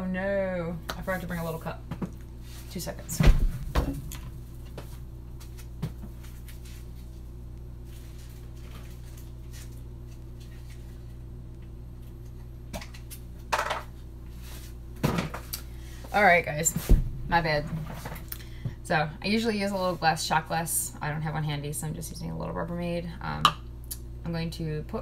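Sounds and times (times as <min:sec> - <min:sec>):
steady low hum: 0:00.0 - 0:25.0
bump of leather chair: 0:16.8 - 0:18.2.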